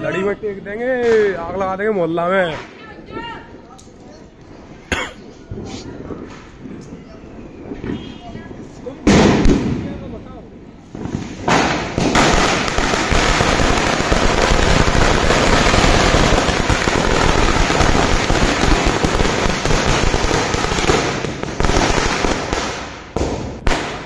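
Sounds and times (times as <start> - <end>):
firecrackers exploding in a chain: 10.9 - 24.0.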